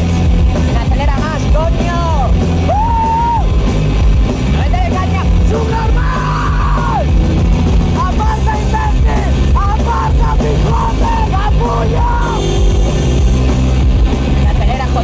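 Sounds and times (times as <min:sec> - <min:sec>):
loud rock music: 0:00.0 - 0:15.0
men yelling: 0:05.0 - 0:07.1, 0:08.0 - 0:12.5.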